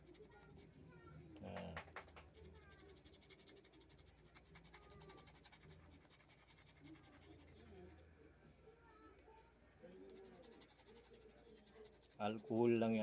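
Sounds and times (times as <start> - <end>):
fingertips scratching thread: 0.0 - 0.8, 1.7 - 8.2, 10.0 - 13.0.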